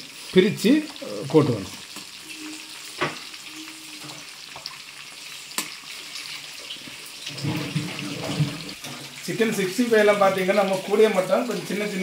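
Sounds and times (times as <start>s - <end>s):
chicken sizzling in hot oil: 0.0s - 12.0s.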